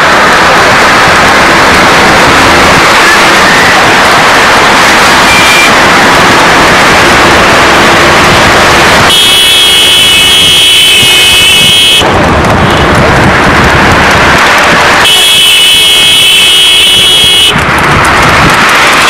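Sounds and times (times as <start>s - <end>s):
road vehicles rushing: 0.0s - 19.0s
wind: 0.0s - 19.0s
vehicle horn blast: 9.1s - 12.0s, 15.0s - 17.5s.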